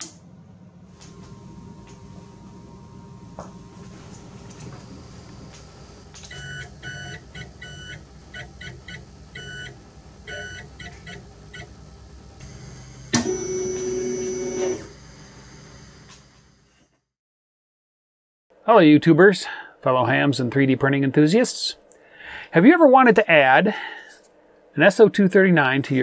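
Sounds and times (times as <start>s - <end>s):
stepper motors whining: 1.0s - 16.8s.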